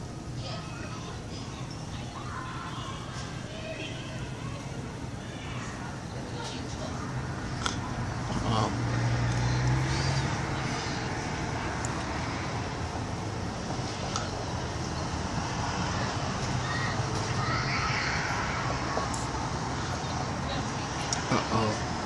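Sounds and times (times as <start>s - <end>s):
distant traffic: 0.0s - 22.0s
faint high-pitched cries: 0.4s - 6.7s, 16.6s - 19.3s.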